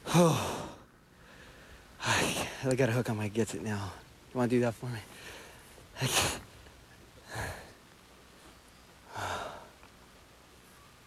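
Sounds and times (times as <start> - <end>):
man breathing heavily: 0.0 - 2.6, 7.2 - 7.8, 9.1 - 9.8.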